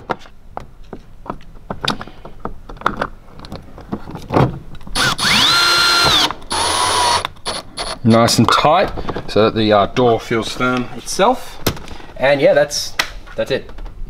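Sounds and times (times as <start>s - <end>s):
tool and trim clicks: 4.9s - 8.0s
cordless drill motor whine: 5.0s - 8.0s.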